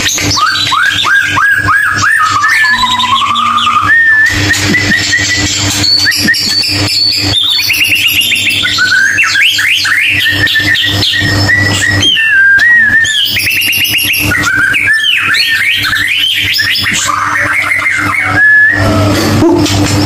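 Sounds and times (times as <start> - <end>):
songbird singing: 0.4 - 5.4
steady low hum: 1.6 - 9.4.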